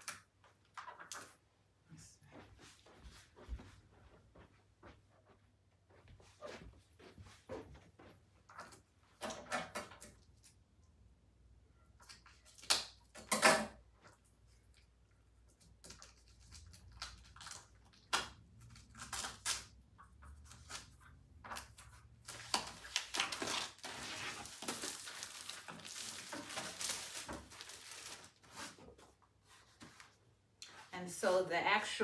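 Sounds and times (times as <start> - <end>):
plastic packaging crinkling: 22.2 - 28.7.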